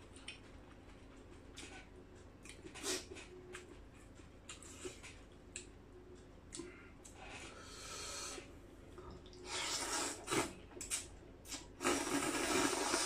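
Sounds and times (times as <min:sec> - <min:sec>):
person chewing: 0:09.2 - 0:13.0
person slurping noodles: 0:09.4 - 0:13.0.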